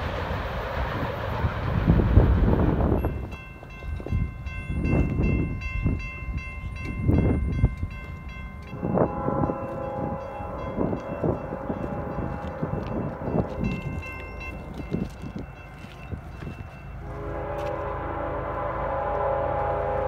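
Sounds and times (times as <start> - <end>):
wind rumbling on microphone: 0.0 - 18.0
distant locomotive horn: 8.7 - 14.0, 17.0 - 20.0.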